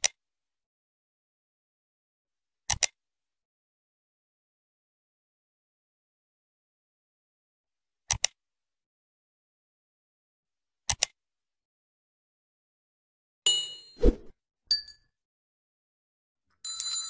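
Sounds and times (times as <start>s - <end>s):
mouse double clicks: 10.9s - 11.1s.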